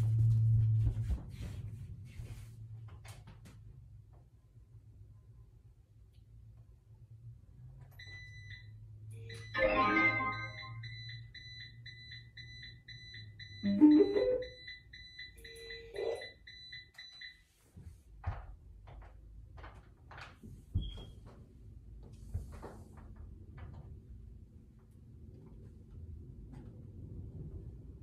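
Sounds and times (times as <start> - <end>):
high electronic beeps: 9.3 - 16.3.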